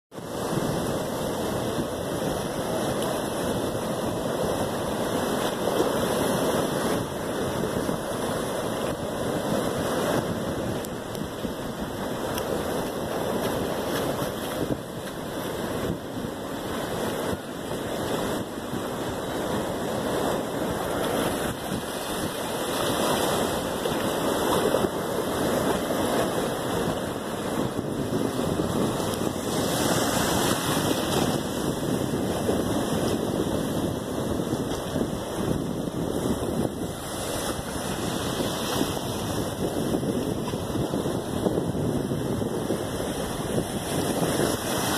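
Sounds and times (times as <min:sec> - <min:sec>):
ocean surf breaking on rocks: 0:00.2 - 0:44.9.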